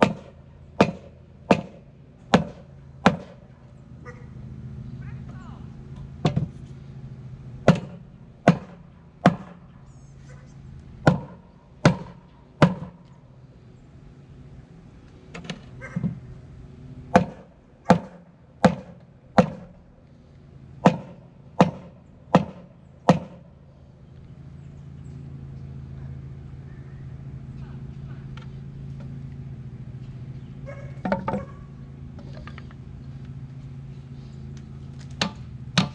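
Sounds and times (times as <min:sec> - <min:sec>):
hammer knocking on wooden board: 0:06.2 - 0:06.5, 0:07.7 - 0:09.5, 0:11.1 - 0:13.0, 0:17.2 - 0:19.7, 0:20.8 - 0:23.4.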